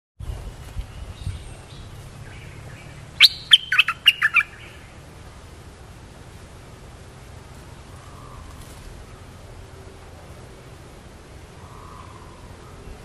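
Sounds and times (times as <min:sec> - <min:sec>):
bird calling: 0:01.2 - 0:05.0, 0:07.6 - 0:09.3, 0:11.5 - 0:13.0.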